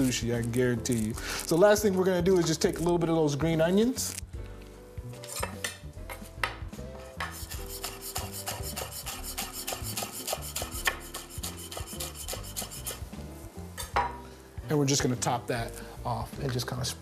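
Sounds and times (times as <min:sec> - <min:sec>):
knife chopping on cutting board: 0:07.2 - 0:13.0.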